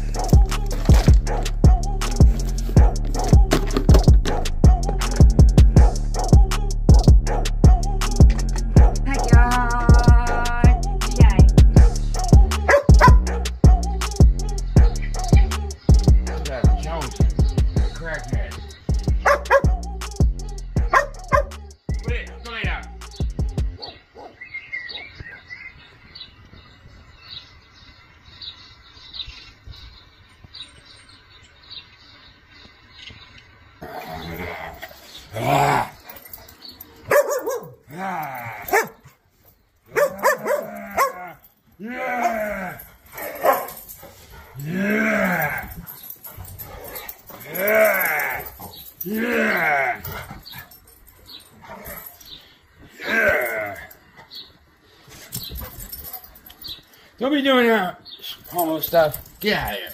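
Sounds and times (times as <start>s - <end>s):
small birds chirping: 8.2s - 41.8s, 42.4s - 59.9s
dog yelp: 37.1s - 37.7s, 39.9s - 41.3s.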